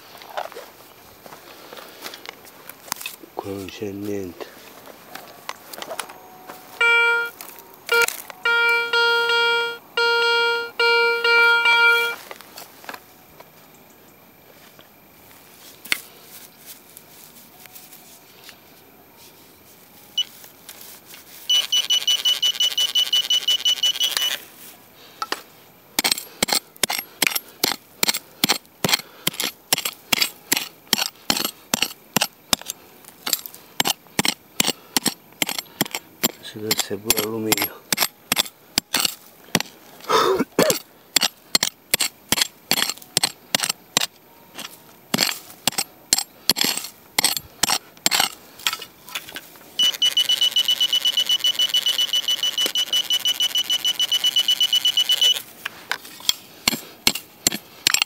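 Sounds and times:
metal detector beeps: 6.7s - 12.2s, 20.0s - 20.4s, 21.4s - 24.5s, 34.2s - 39.1s, 49.8s - 55.5s
metal detector warbling tone: 6.8s - 12.2s, 21.5s - 24.4s, 49.8s - 55.4s.

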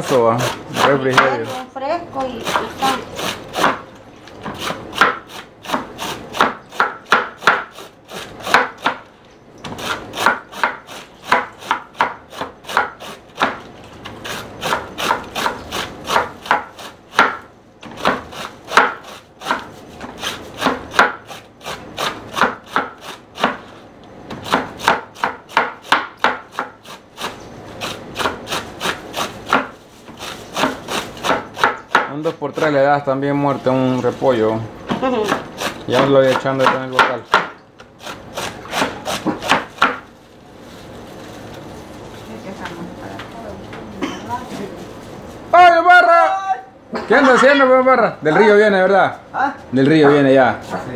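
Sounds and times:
knife slicing cabbage on board: 0.0s - 1.6s, 2.2s - 32.2s, 35.0s - 40.1s.

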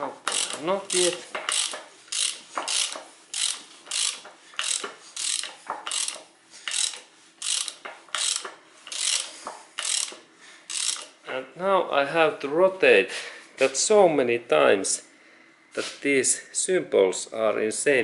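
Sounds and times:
ratchet wrench rasping: 0.2s - 11.2s.

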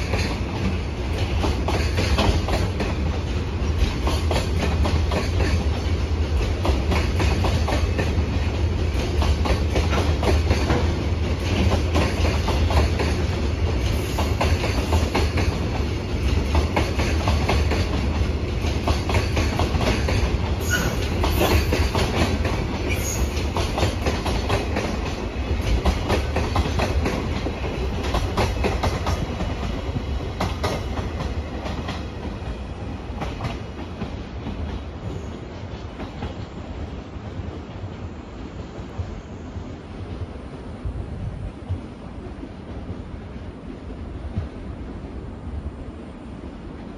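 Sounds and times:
train wheels clattering over rail joints: 0.0s - 36.5s
freight train rumbling past: 0.0s - 46.9s.

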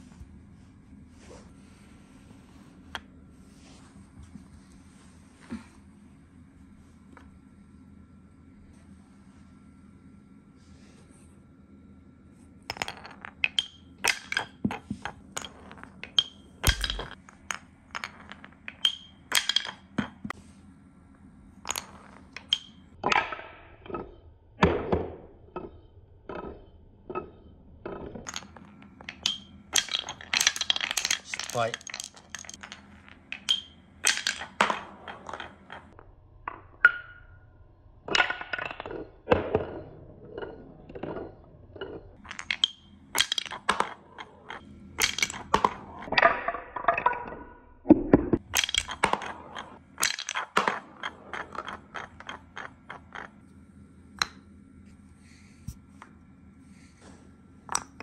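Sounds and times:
marbles clacking on wooden blocks: 12.7s - 20.4s, 21.6s - 25.0s, 25.6s - 37.2s, 38.1s - 54.6s, 57.7s - 58.0s.

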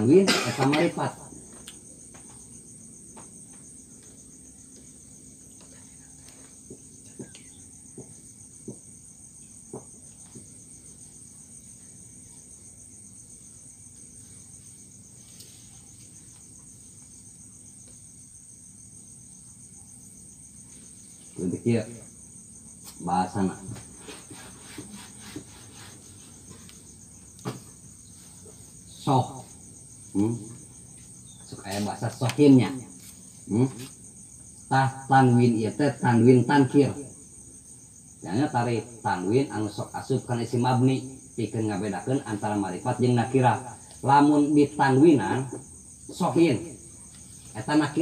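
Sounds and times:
crickets chirping: 0.0s - 48.0s
man speaking: 21.4s - 22.1s, 30.1s - 30.6s, 33.5s - 33.9s.

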